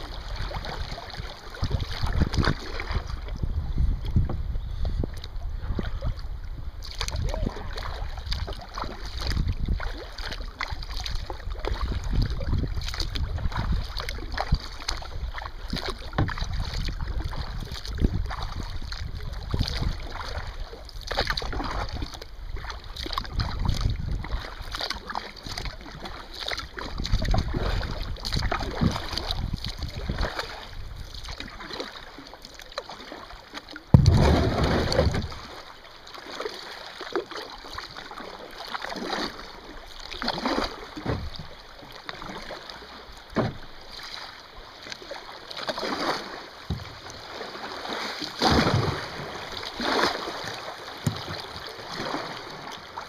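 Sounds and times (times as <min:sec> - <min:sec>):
wind on microphone: 0:00.0 - 0:10.1, 0:10.7 - 0:20.6, 0:21.2 - 0:24.6, 0:26.9 - 0:31.2, 0:33.9 - 0:35.6
paddle splashing in water: 0:00.0 - 0:53.0.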